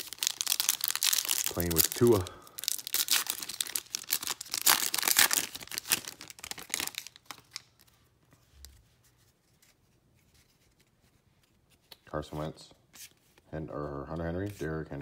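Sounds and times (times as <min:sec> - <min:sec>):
plastic wrapper tearing and crinkling: 0:00.0 - 0:07.9.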